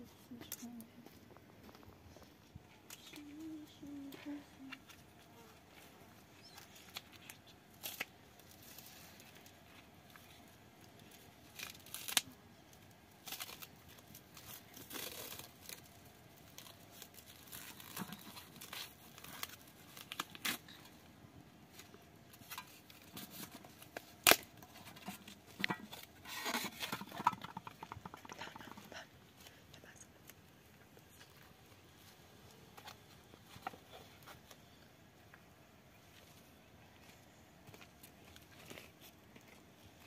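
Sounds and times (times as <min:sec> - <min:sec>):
plastic wrap ripping and crinkling: 0:06.4 - 0:21.1, 0:21.7 - 0:28.8.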